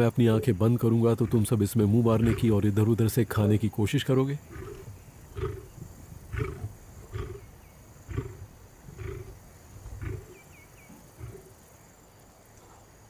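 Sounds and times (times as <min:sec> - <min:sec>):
lion growling: 0:01.1 - 0:02.6, 0:04.4 - 0:07.5, 0:08.1 - 0:10.4, 0:11.1 - 0:11.6.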